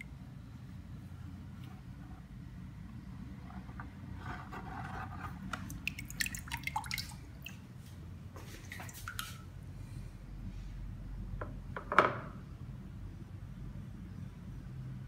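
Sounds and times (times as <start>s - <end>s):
steady low hum: 0.0s - 15.0s
splashes and drips: 5.6s - 7.7s, 8.4s - 9.6s
water sloshing in plastic bucket: 8.4s - 9.5s.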